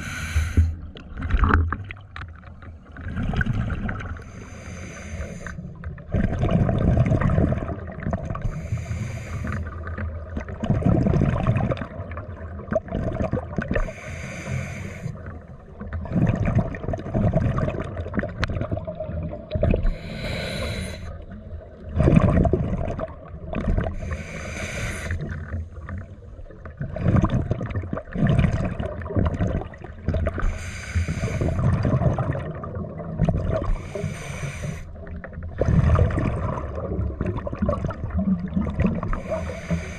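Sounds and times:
scuba regulator inhalation hiss: 0:00.0 - 0:00.8, 0:04.2 - 0:05.6, 0:08.4 - 0:09.7, 0:13.8 - 0:15.2, 0:19.8 - 0:21.2, 0:24.0 - 0:25.2, 0:30.4 - 0:31.6, 0:33.8 - 0:35.0, 0:39.2 - 0:39.9
exhaled bubbles rumbling: 0:00.0 - 0:04.7, 0:05.6 - 0:14.0, 0:15.2 - 0:39.9.

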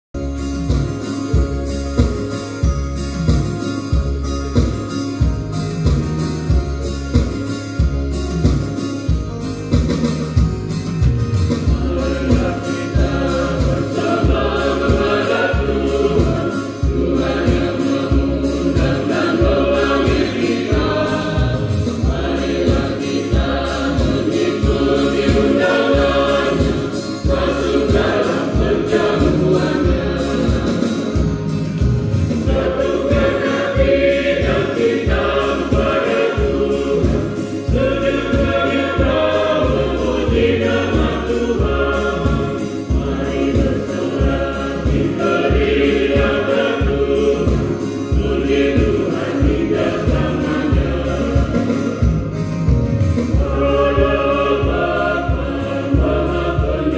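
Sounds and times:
electronic keyboard: 0:00.2 - 0:56.9
drum-machine beat: 0:00.6 - 0:56.9
choir singing a hymn: 0:11.6 - 0:56.9.

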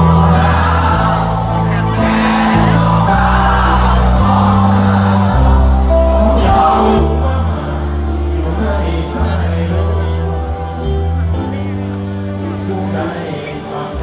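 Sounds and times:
crowd singing along: 0:00.0 - 0:11.2, 0:12.4 - 0:14.0
live rock band playing: 0:00.0 - 0:14.0
man singing: 0:01.8 - 0:10.9, 0:12.5 - 0:14.0.

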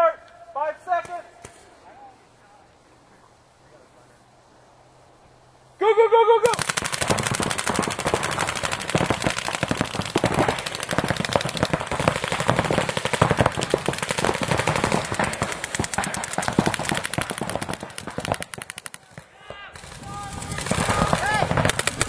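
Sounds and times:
paintball markers firing rapidly: 0:06.5 - 0:22.0.

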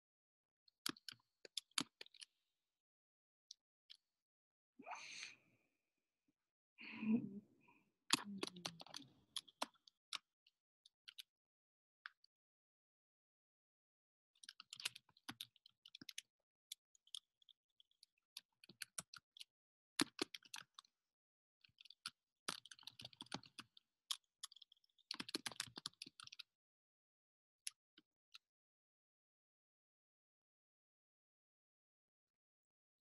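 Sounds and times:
typing on computer keyboard: 0:08.1 - 0:10.3, 0:14.4 - 0:20.9, 0:21.6 - 0:26.5.

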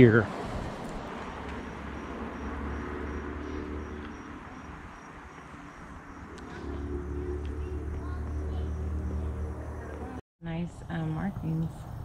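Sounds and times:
insect chirping: 0:01.1 - 0:10.2
low rumble: 0:03.1 - 0:10.2.

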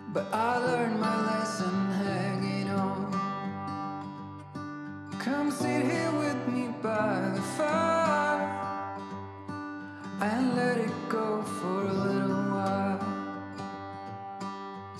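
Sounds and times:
strummed acoustic guitar: 0:00.0 - 0:14.9.

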